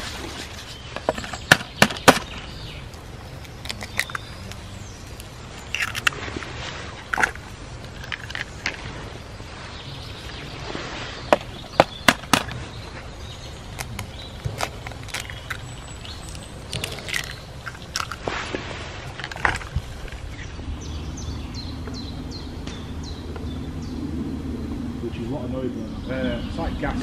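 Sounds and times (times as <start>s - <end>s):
eggshell clicks and scrapes: 2.9s - 6.2s, 7.0s - 8.8s, 13.7s - 18.3s, 19.1s - 20.4s.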